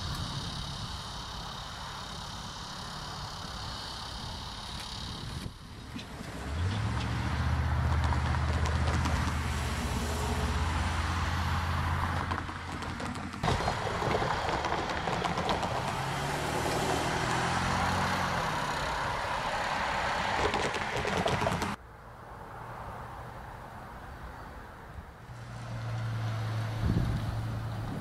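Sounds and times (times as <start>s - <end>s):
diesel locomotive engine drone: 0.0s - 21.8s
train rumble: 12.0s - 21.8s.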